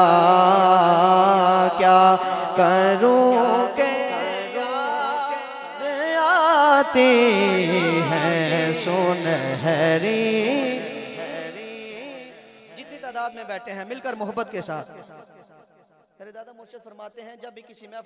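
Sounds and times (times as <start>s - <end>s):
man singing through microphone: 0.0s - 14.8s.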